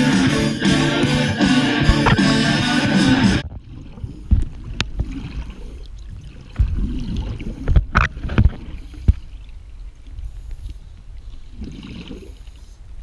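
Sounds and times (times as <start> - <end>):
guitar music: 0.0 - 3.4
low underwater rumble: 0.5 - 13.0.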